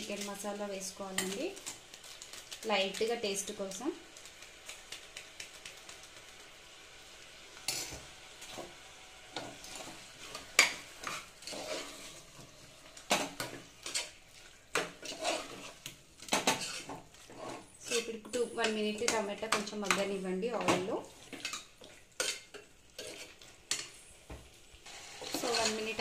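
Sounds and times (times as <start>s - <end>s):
food sizzling in oil: 0.0s - 26.0s
spoon stirring and scraping pot: 7.6s - 24.3s, 24.9s - 26.0s.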